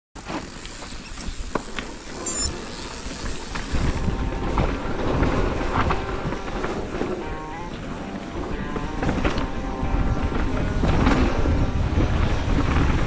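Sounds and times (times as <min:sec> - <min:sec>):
tyres rolling over dirt: 0:00.2 - 0:13.0
wind buffeting microphone: 0:02.5 - 0:13.0.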